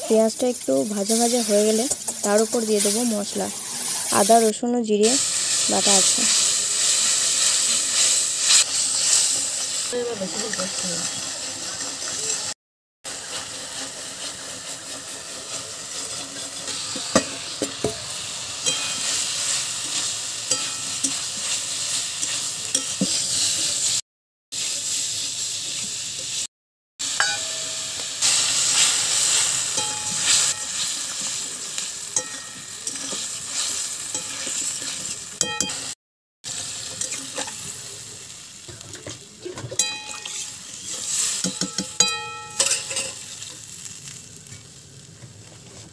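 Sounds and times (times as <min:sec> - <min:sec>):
vegetables sizzling in oil: 0:00.0 - 0:45.9
spatula scraping a pan: 0:01.1 - 0:04.1, 0:05.4 - 0:12.5, 0:13.1 - 0:17.9, 0:18.6 - 0:24.0, 0:28.2 - 0:35.8, 0:39.8 - 0:43.4.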